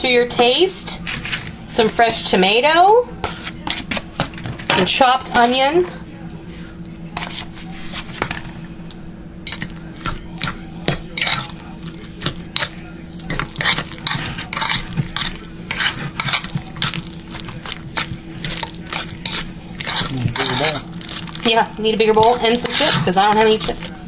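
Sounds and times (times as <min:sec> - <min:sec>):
fork squishing guacamole: 0:09.5 - 0:21.6, 0:22.2 - 0:24.0.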